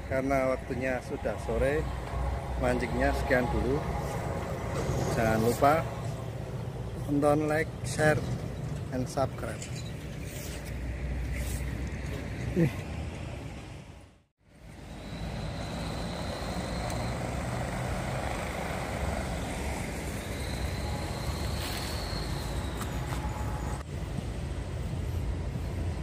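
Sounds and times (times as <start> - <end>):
vehicle rumble: 0.0 - 26.0
faint high whine: 14.5 - 23.9.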